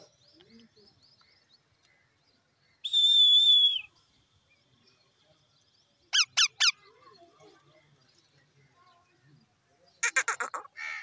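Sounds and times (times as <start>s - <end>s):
parakeets calling: 6.2s - 6.9s.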